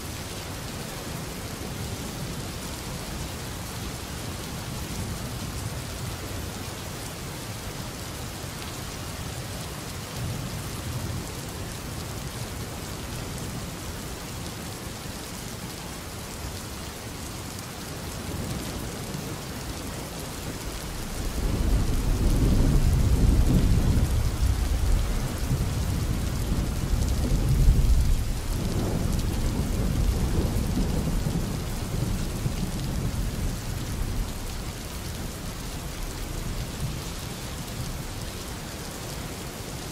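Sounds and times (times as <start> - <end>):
steady rain: 0.0 - 39.9
rumble of thunder: 20.5 - 37.0.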